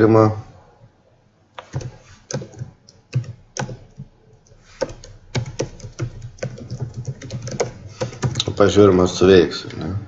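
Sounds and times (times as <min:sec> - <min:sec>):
computer keyboard typing: 0:01.6 - 0:08.8.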